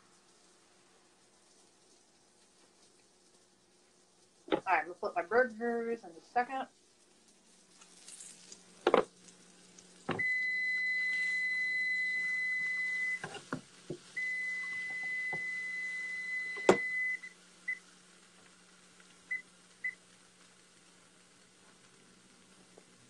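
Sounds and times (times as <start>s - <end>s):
faint low hum: 0.0s - 23.0s
electronic beeper beeping: 14.2s - 17.3s.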